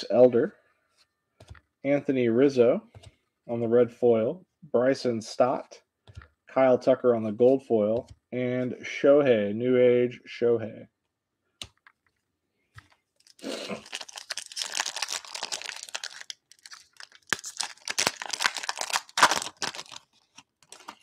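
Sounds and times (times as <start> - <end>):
foil wrapper torn and crinkled: 13.2 - 21.0.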